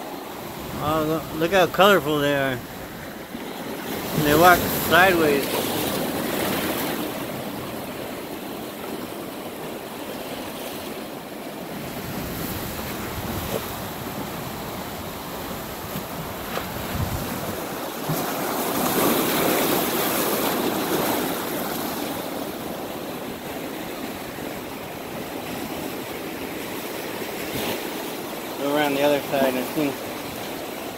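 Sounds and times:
ocean surf over rocks: 0.0 - 30.9.

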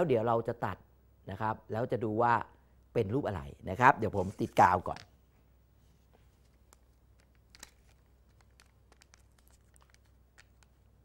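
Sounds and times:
paper strip rustling: 4.1 - 5.0, 6.3 - 10.9
glue stick rubbing on paper: 6.4 - 10.7.

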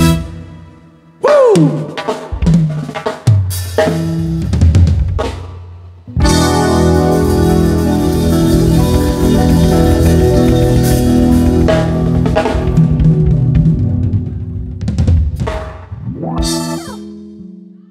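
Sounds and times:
live band holding a chord: 0.0 - 2.2, 6.1 - 15.2
drum fills: 1.2 - 17.0.

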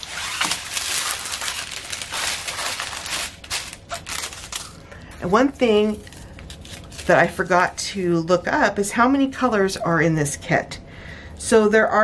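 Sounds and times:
plastic bags crinkling: 0.0 - 7.8.

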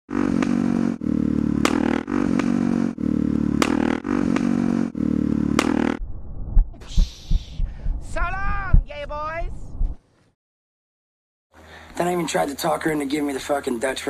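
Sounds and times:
motorcycle engine running: 0.1 - 6.0.

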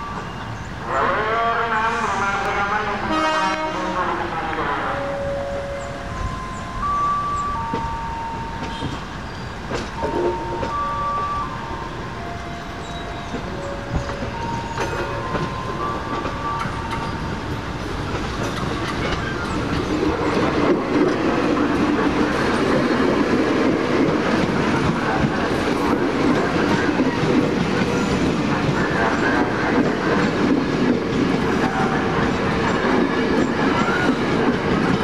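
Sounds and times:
electric train running past: 0.0 - 35.0
train wheels squealing: 5.4 - 11.6, 12.2 - 17.6, 31.6 - 35.0.

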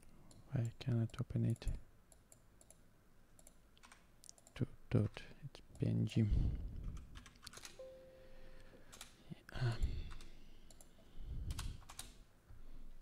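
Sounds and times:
keyboard keys clicking: 7.0 - 7.8, 11.5 - 12.2.

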